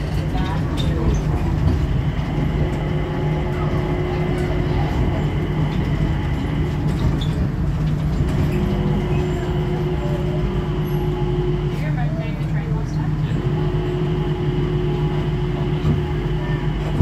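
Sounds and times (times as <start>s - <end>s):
train low hum: 0.0s - 17.0s
train whine: 0.0s - 17.0s.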